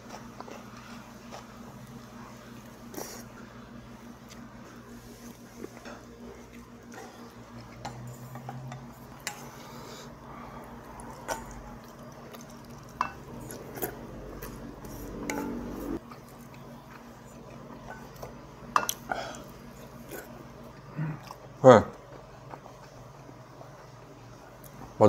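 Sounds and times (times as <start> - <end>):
steady hum: 0.0 - 25.0
utensils scraping a metal bowl: 14.8 - 16.0.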